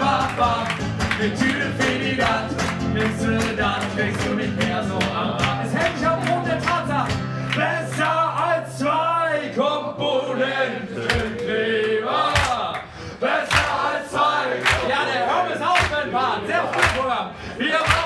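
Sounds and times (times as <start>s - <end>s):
audience clapping a beat: 0.0s - 8.6s, 10.9s - 18.0s
acoustic guitar: 0.0s - 9.7s
audience singing along: 0.0s - 18.0s.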